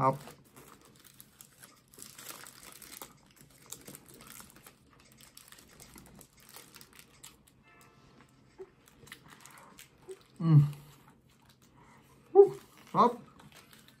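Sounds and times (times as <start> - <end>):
paper wrapper crinkling: 0.0 - 7.6, 8.8 - 10.4, 12.6 - 14.0
person chewing: 0.4 - 7.5, 8.4 - 14.0.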